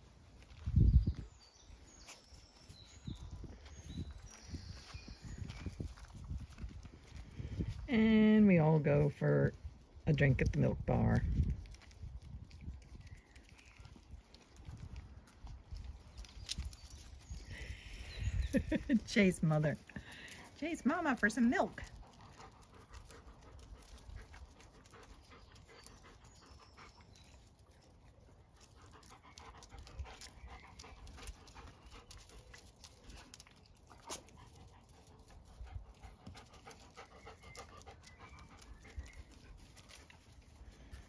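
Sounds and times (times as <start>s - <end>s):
small clicks and scuffs: 1.9s - 7.8s, 11.3s - 17.5s, 27.1s - 37.0s, 37.6s - 41.0s
dogs panting: 13.4s - 41.0s.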